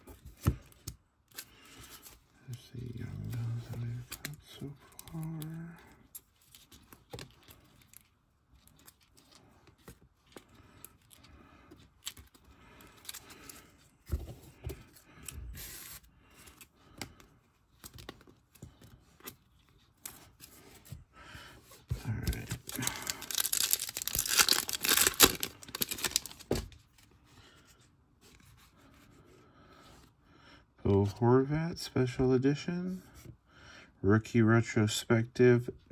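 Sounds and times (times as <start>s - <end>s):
wrapper tearing and crinkling: 22.4s - 26.5s.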